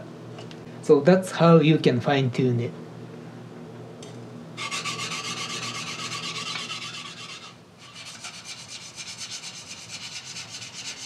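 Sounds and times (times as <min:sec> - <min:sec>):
knife grinding on whetstone: 0:04.6 - 0:11.0.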